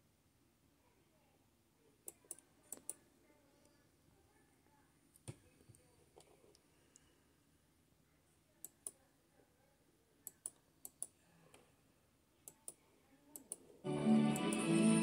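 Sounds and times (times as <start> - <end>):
faint sharp clicks: 2.1 - 3.0.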